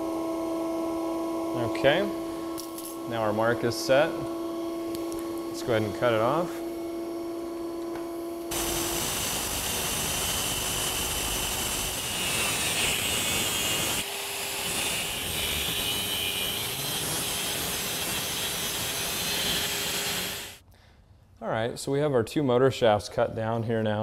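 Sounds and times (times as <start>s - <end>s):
constant motor hum: 0.0s - 20.6s
angle grinder cutting metal: 8.5s - 20.6s.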